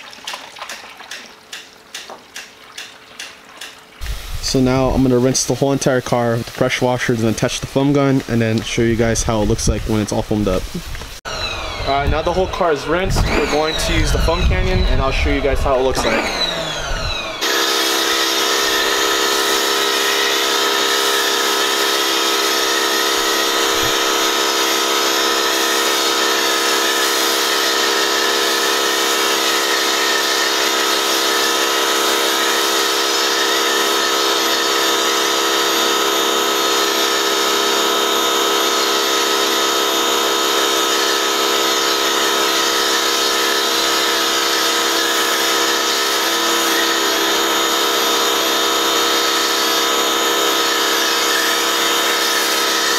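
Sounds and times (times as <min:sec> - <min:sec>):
foam cannon hissing: 0:04.0 - 0:11.2, 0:11.9 - 0:52.9
pressure washer motor whining: 0:04.0 - 0:52.9.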